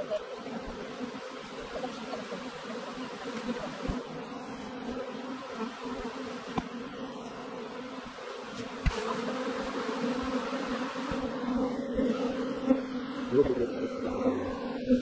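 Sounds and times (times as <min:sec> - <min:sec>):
bee swarm humming: 0:00.0 - 0:15.0.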